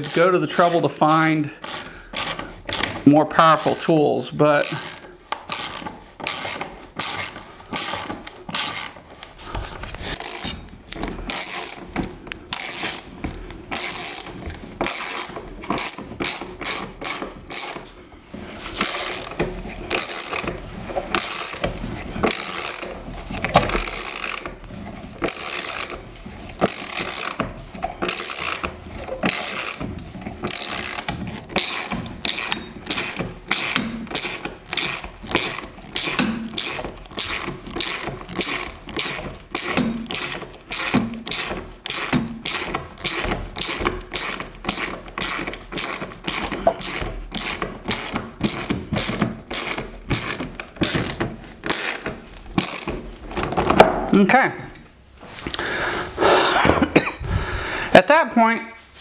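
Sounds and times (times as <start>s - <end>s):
socket ratchet clicking: 10.2s - 17.8s, 18.8s - 24.6s, 25.2s - 27.4s, 28.0s - 53.0s.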